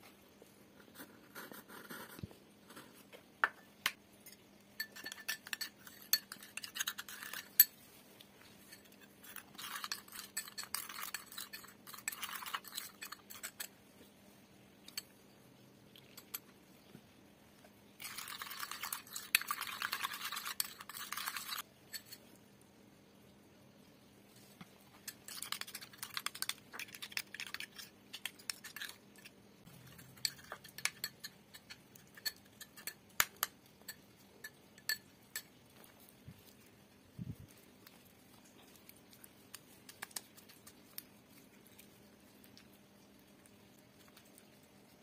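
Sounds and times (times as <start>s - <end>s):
spoon clinking on glass bowl: 4.3s - 7.7s, 30.0s - 35.6s
spoon scraping glass bowl: 4.3s - 7.8s, 8.6s - 13.7s, 18.0s - 22.3s, 25.0s - 33.0s.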